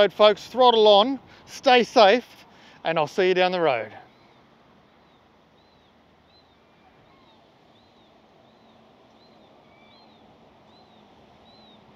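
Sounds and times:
bird high arching chirp: 0:04.0 - 0:11.9
lower bird calls: 0:04.0 - 0:11.9.

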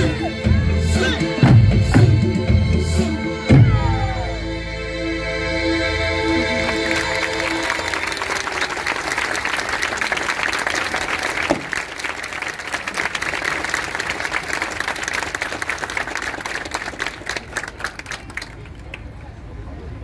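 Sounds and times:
audience applauding: 0:06.4 - 0:19.1.

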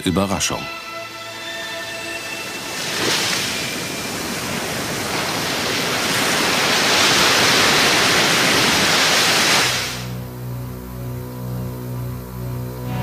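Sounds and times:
surf washing against rocks: 0:02.4 - 0:10.2.

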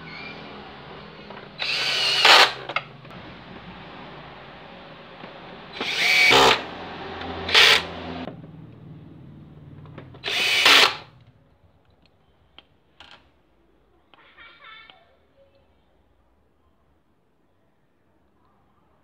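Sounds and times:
cordless drill whirring: 0:01.6 - 0:02.8, 0:05.7 - 0:08.2, 0:10.2 - 0:11.1.

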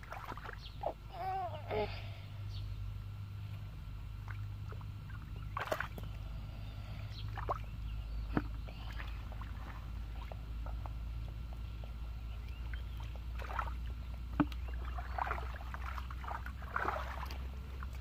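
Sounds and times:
hands sloshing through muddy puddle: 0:00.0 - 0:01.0, 0:04.2 - 0:06.6, 0:07.2 - 0:11.0, 0:12.5 - 0:18.0
steady low rumble: 0:00.0 - 0:18.0
sharp splashes and clicks: 0:04.2 - 0:06.2.

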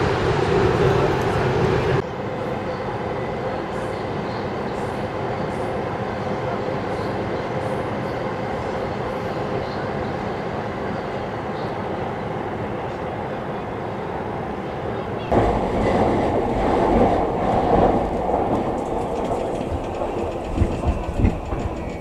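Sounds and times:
electric train running on track: 0:14.7 - 0:22.0.

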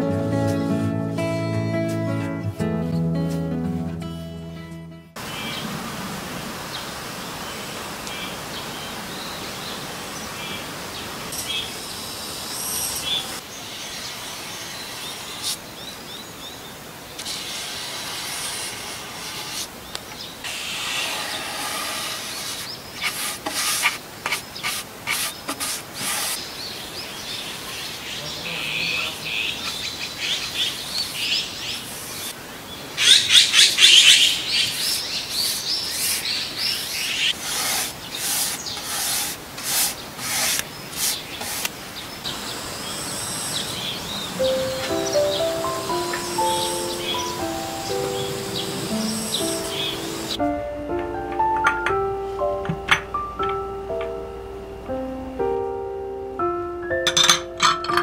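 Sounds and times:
birds chirping: 0:05.2 - 0:06.0, 0:06.6 - 0:17.2, 0:26.1 - 0:39.2, 0:39.9 - 0:54.2
paintbrush rubbing on wood: 0:20.6 - 0:26.4, 0:34.8 - 0:41.7.

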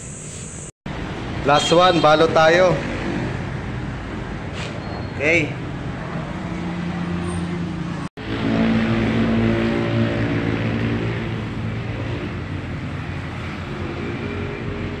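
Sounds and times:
street noise: 0:00.0 - 0:15.0
engine hum: 0:05.8 - 0:15.0.

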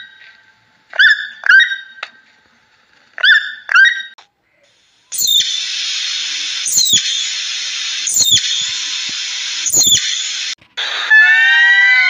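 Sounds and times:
high hissing chatter: 0:04.4 - 0:10.6
squirrel high chirps: 0:05.1 - 0:05.8, 0:06.5 - 0:10.5.

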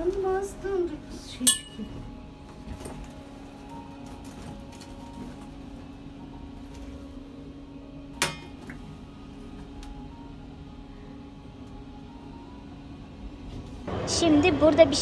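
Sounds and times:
steady low hum: 0:00.0 - 0:15.0
sharp ringing clink on metal hooks: 0:01.4 - 0:01.9.

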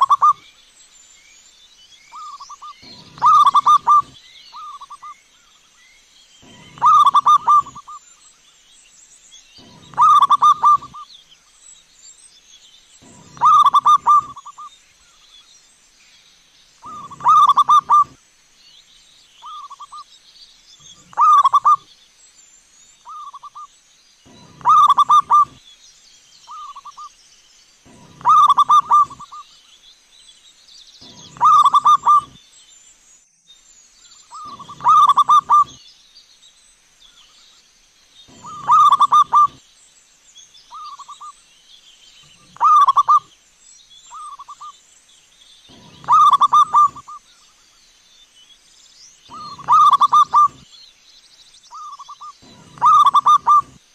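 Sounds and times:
dove cooing: 0:00.0 - 0:00.4, 0:02.2 - 0:05.1, 0:06.4 - 0:08.0, 0:09.6 - 0:11.0, 0:13.0 - 0:14.7, 0:16.8 - 0:18.2, 0:21.0 - 0:21.8, 0:24.3 - 0:25.6, 0:27.9 - 0:29.4, 0:31.0 - 0:32.4, 0:34.4 - 0:35.8, 0:38.3 - 0:39.6, 0:42.4 - 0:43.2, 0:45.7 - 0:47.2, 0:49.3 - 0:50.6, 0:51.8 - 0:53.8.

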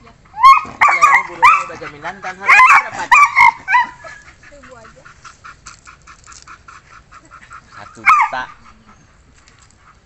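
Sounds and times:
dog barking loudly: 0:00.4 - 0:05.0, 0:06.5 - 0:08.9.

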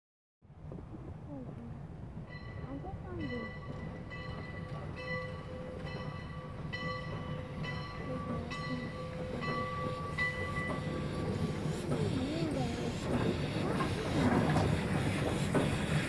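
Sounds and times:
locomotive bell ringing: 0:02.2 - 0:15.0.

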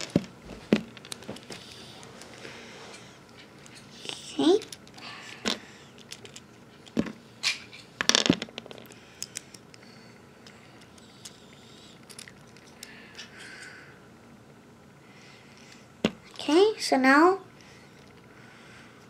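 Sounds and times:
plastic parts clicking and clattering: 0:04.6 - 0:09.5.

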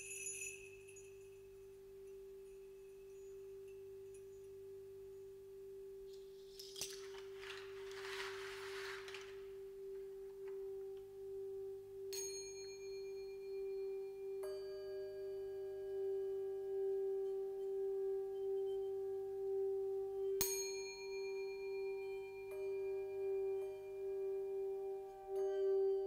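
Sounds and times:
rustling jingling noise: 0:00.0 - 0:05.4
singing bowl humming tone: 0:09.6 - 0:26.0.

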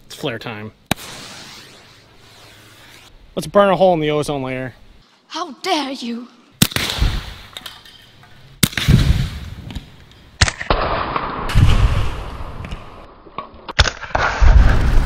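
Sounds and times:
air pistol shots: 0:00.9 - 0:01.9, 0:06.6 - 0:07.5, 0:08.6 - 0:09.8
spray cans bursting and igniting: 0:00.9 - 0:03.1.

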